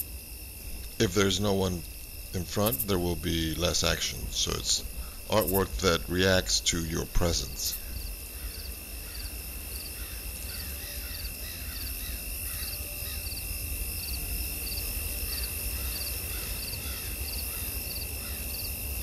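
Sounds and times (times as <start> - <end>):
steady low hum: 0.0 - 19.0
rhythmic chirping: 0.8 - 8.1.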